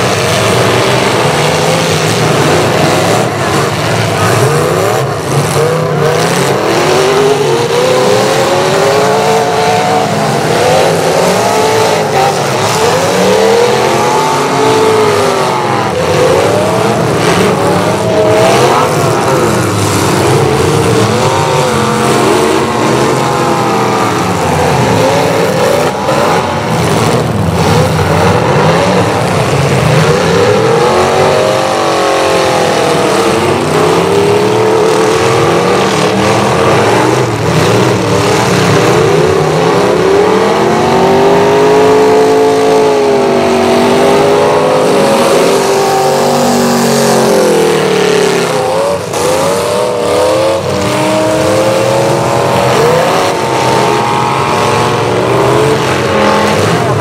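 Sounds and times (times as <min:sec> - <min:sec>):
car engines revving: 0:00.0 - 0:57.0.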